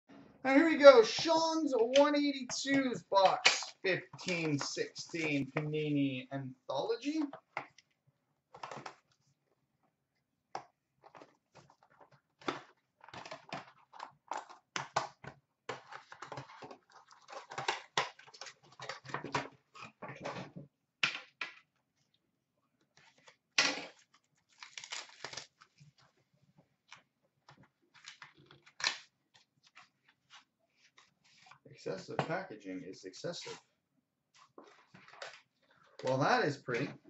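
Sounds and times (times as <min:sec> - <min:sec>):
plastic wrapping torn and crinkled: 0:23.7 - 0:26.0.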